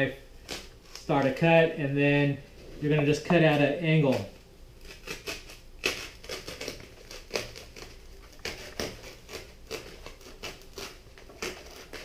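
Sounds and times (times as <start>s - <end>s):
knife cutting foam: 2.8s - 12.0s.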